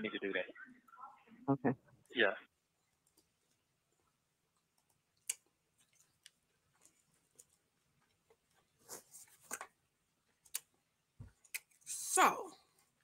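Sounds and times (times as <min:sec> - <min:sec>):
faint clicks and ticks: 0:02.8 - 0:08.6.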